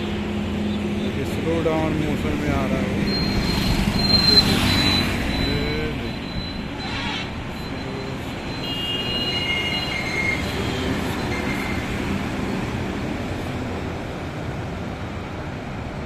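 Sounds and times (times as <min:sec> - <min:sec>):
diesel truck engine rumble: 0:00.0 - 0:08.5
tyre noise on road: 0:00.0 - 0:16.0.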